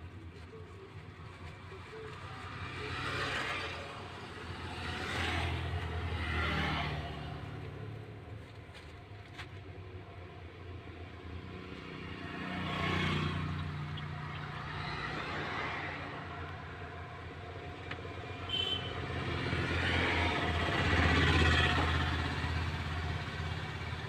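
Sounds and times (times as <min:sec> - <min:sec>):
road and tyre noise: 0:00.0 - 0:24.0
truck engine drone: 0:11.0 - 0:24.0.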